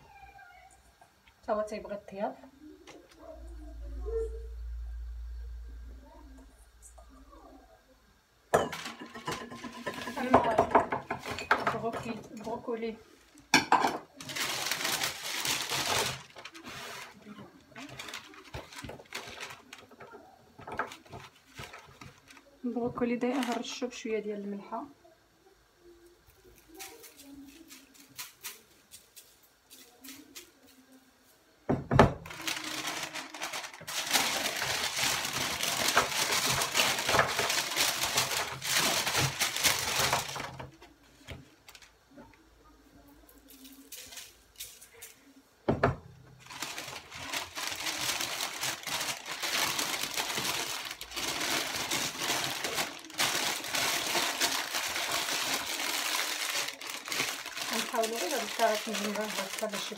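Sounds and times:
plastic bag rustling and crinkling: 8.5s - 24.4s, 31.9s - 42.3s, 43.4s - 59.9s.

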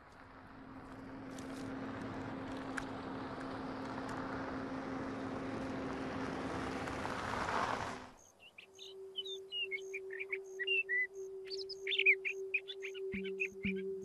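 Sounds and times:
road noise rushing: 0.0s - 8.2s
vehicle approaching: 0.0s - 8.2s.

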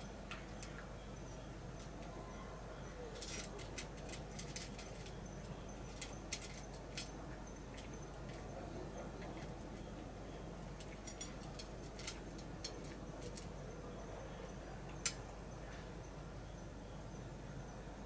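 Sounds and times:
cat eating kibble from metal dish: 3.1s - 13.6s.

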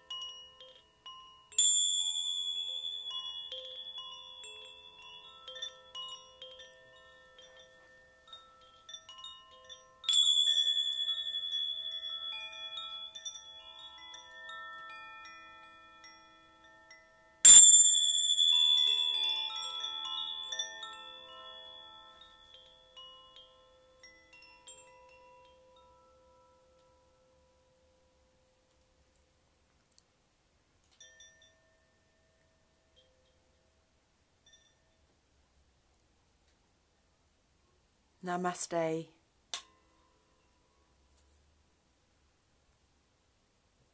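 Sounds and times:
chimes tinkling: 0.0s - 28.7s, 30.9s - 33.7s, 34.4s - 35.1s
bright chime strikes: 17.5s - 22.5s.

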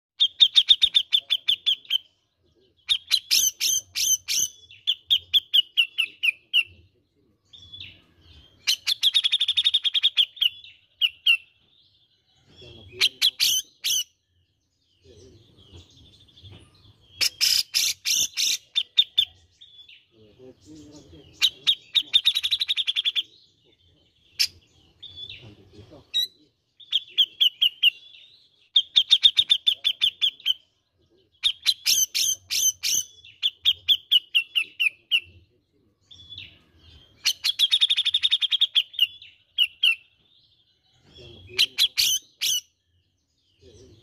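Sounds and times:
bird chattering song: 0.2s - 44.0s.

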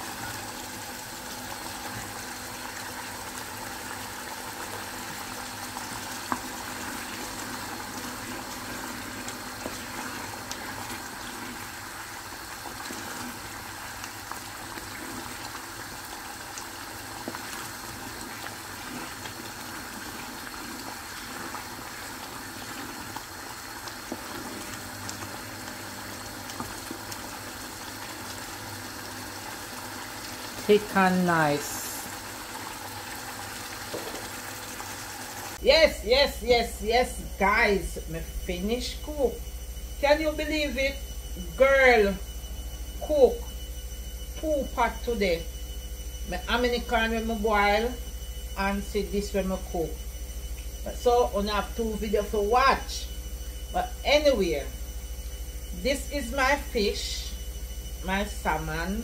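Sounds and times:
thick sauce boiling and popping: 0.0s - 30.8s, 31.4s - 35.6s.

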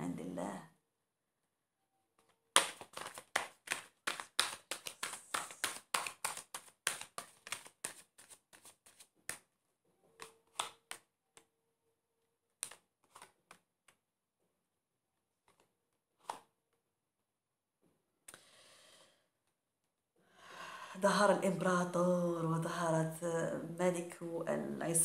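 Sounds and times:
cards being shuffled: 2.2s - 9.5s, 10.1s - 11.5s, 12.6s - 14.0s, 15.4s - 16.5s
card taps: 2.6s - 9.4s, 10.2s - 11.0s.

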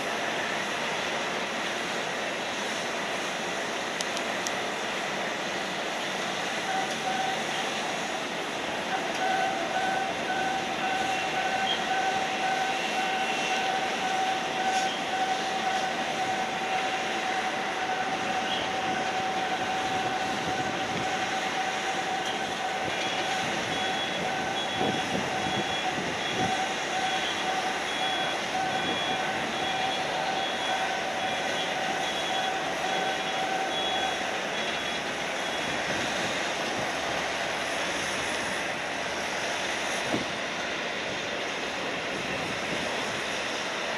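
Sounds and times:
broad rushing noise: 0.0s - 43.9s
jet engine whine: 0.0s - 43.9s
faint pulsing beeps: 9.0s - 35.8s.

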